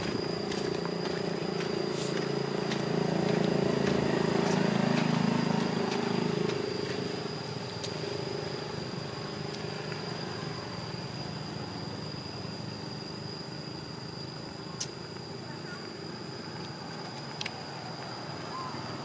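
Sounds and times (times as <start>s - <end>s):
motor engine running: 0.0s - 9.4s
high-pitched whine: 0.0s - 19.0s.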